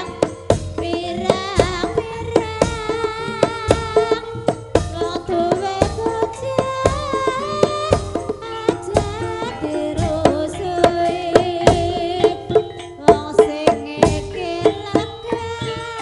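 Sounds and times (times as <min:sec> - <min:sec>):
hand drum strokes: 0:00.0 - 0:16.0
woman singing: 0:00.0 - 0:16.0
gamelan metallophones and gongs: 0:04.1 - 0:16.0.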